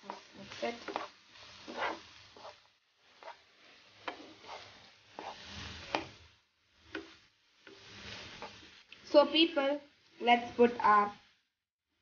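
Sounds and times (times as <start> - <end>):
spatula scraping a frying pan: 0.0 - 8.9
onions sauteing in oil: 0.0 - 12.0.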